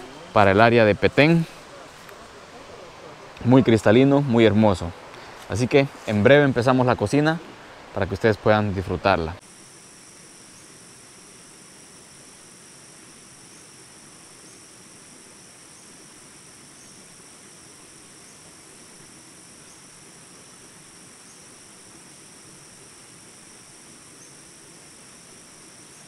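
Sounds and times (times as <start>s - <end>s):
insects buzzing: 0.0s - 26.0s
faint chirps: 9.7s - 26.0s.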